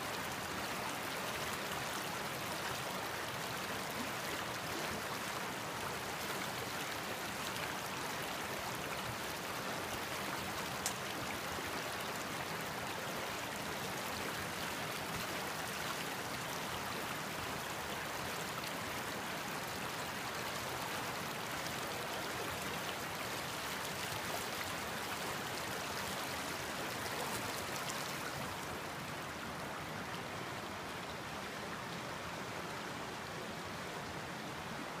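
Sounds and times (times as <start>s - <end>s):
faint click: 10.8s - 11.0s.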